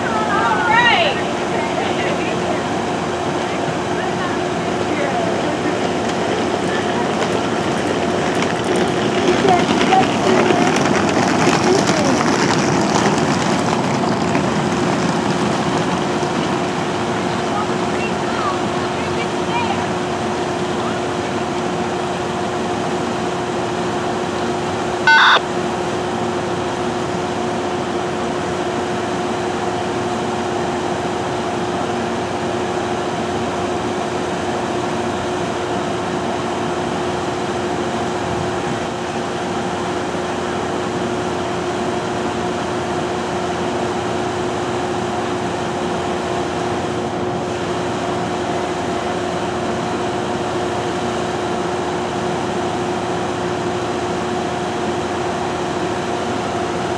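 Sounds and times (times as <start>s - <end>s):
train machinery hum: 0.0s - 56.9s
short electronic beep: 25.1s - 25.5s.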